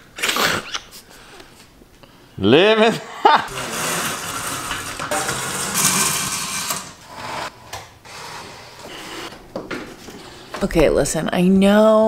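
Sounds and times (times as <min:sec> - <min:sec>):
window shade cord rattling and whirring: 0:03.5 - 0:07.5.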